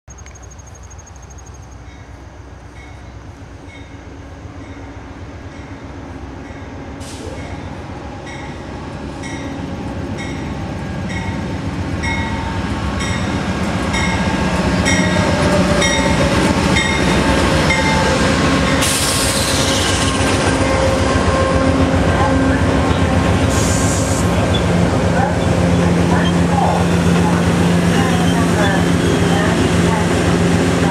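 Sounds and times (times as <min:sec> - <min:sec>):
diesel locomotive rolling past: 0:00.2 - 0:30.9
locomotive bell ringing: 0:11.1 - 0:18.1
sharp hiss: 0:18.8 - 0:20.0, 0:23.5 - 0:24.4.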